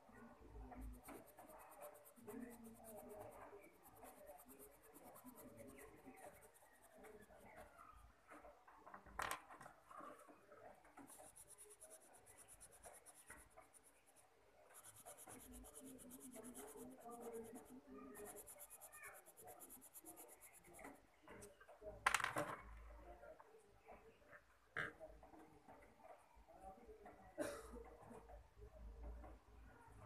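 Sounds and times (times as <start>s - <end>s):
pencil scratching on paper: 0.3s - 7.7s, 10.9s - 21.0s.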